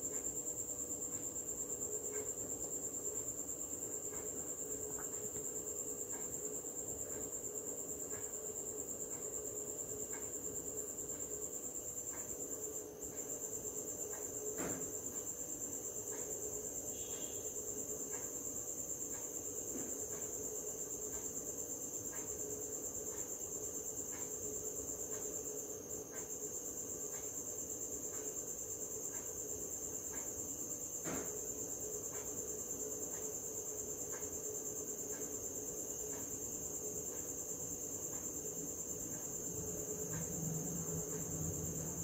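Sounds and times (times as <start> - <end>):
steady low hum: 0.0 - 42.0
insect trilling: 12.8 - 42.0.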